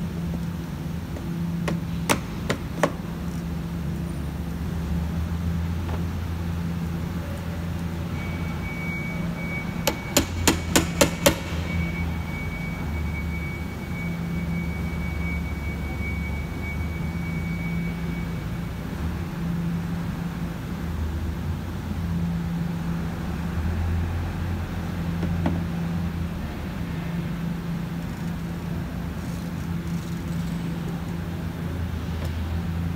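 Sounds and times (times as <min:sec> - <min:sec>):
hammer tapping metal tool: 0:09.9 - 0:11.5.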